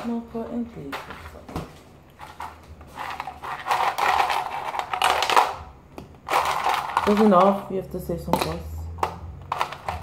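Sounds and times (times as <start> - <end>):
ice cubes clattering on plastic: 2.4 - 5.6, 6.2 - 7.7, 9.4 - 10.0.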